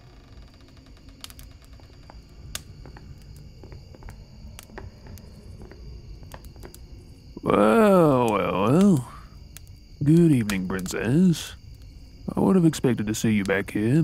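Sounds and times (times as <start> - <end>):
small clicks and ticks: 0.0 - 7.0.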